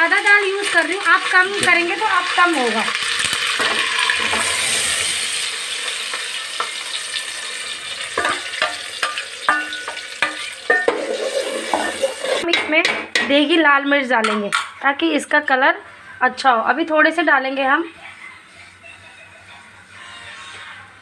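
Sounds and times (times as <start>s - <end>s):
puree sizzling in hot oil: 0.0s - 12.5s
spoon scraping metal pot: 8.2s - 12.6s.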